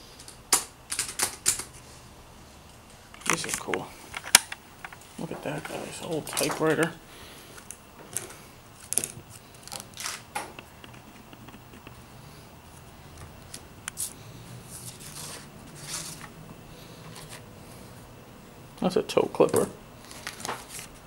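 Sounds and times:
rustles and clicks on desk: 0.2s - 1.8s, 3.2s - 6.9s, 7.6s - 12.1s
paper sheets moving: 13.5s - 17.5s, 20.0s - 21.0s.

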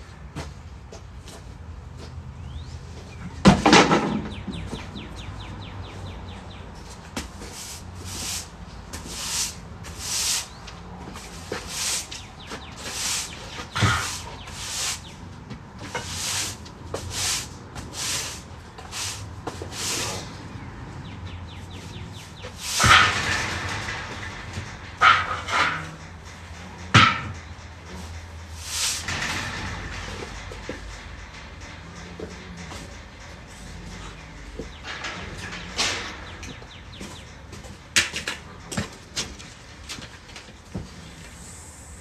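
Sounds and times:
broom sweeping concrete: 7.3s - 15.2s, 15.8s - 20.4s, 22.4s - 23.3s, 28.6s - 29.2s
chain-link gate rattling: 7.6s - 41.2s.

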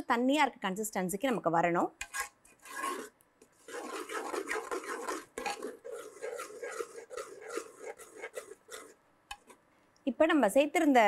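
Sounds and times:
ladle stirring and scraping pot: 2.0s - 9.7s.

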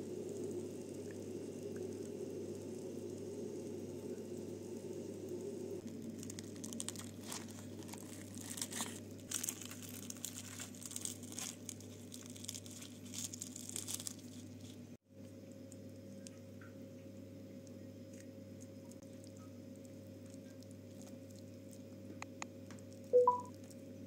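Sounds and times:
steady low hum: 0.0s - 24.0s
fried fish crackling as broken: 5.8s - 14.8s.

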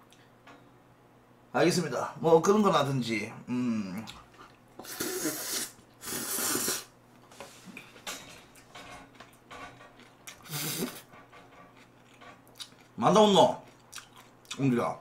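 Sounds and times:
quiet chewing: 3.9s - 5.1s, 7.2s - 14.7s
man slurping noodles: 4.8s - 6.9s, 10.4s - 11.0s.

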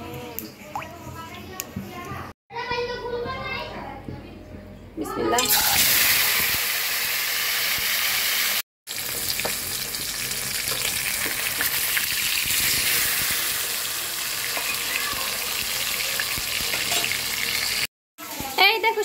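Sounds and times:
fish deep-frying sizzle: 5.5s - 17.9s.

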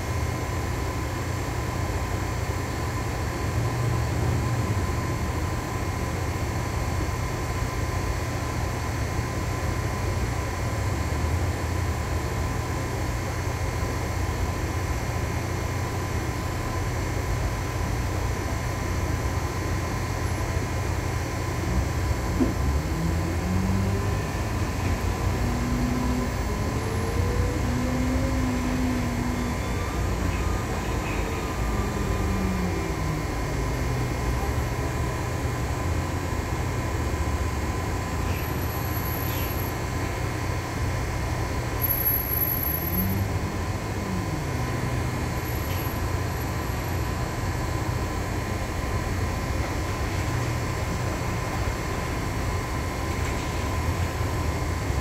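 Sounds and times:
bus diesel engine: 0.0s - 55.0s
road noise: 0.0s - 55.0s.

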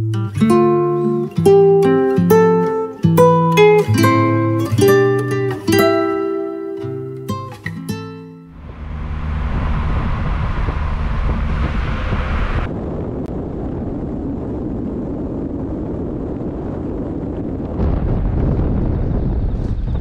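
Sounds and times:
steady low rumble: 8.5s - 20.0s
wind buffeting microphone: 8.5s - 20.0s.

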